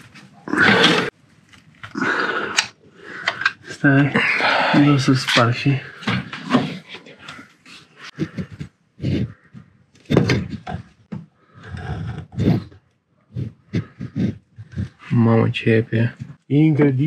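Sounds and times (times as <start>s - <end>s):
person grunting: 0.5s - 1.1s, 1.9s - 2.6s, 4.0s - 5.0s.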